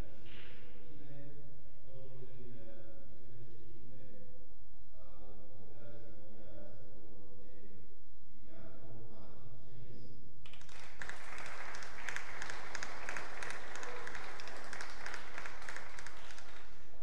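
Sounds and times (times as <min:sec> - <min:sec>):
single sharp claps: 0:10.5 - 0:16.8
audience applauding: 0:10.5 - 0:17.0.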